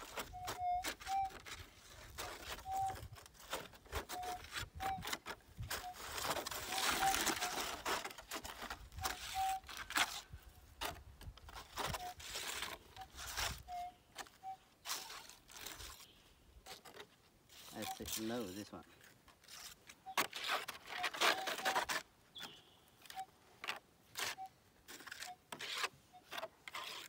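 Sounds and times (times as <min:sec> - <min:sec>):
metal detector beeps: 0:00.0 - 0:03.2, 0:04.0 - 0:07.7, 0:13.0 - 0:15.3, 0:17.7 - 0:18.6, 0:21.0 - 0:23.4
coil scraping ground: 0:00.0 - 0:27.0.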